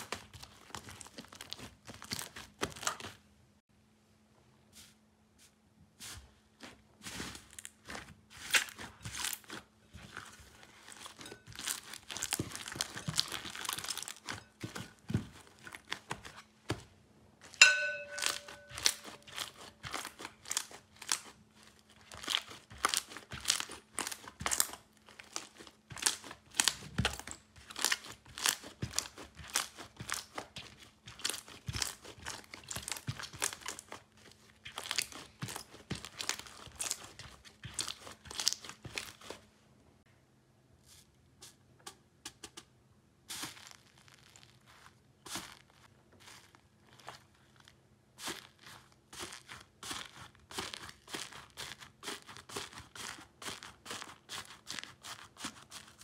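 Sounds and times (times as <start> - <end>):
slime squeezed by hands: 7.1 - 10.2, 10.8 - 14.4, 18.3 - 39.4, 43.3 - 56.0.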